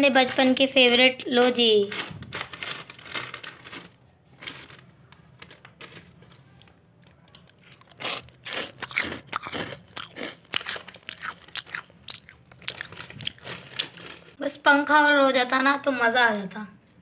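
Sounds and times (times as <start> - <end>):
foil snack packet crinkling: 0.1 - 14.4
crunchy snack chewing: 7.1 - 14.3.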